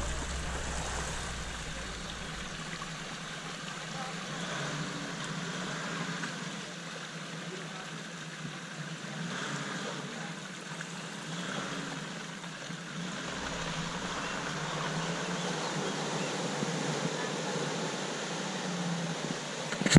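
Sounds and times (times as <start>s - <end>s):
steady rushing noise: 0.0s - 3.9s, 13.1s - 15.9s
distant diesel engine hum: 0.0s - 4.8s, 13.0s - 18.8s.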